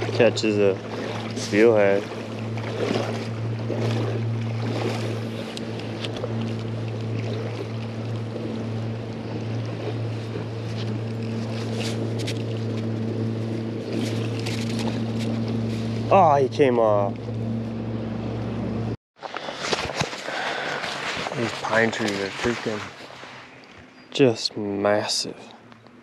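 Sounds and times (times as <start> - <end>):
rushing river water: 0.0 - 12.6, 19.6 - 23.9
boat motor humming: 0.0 - 26.0.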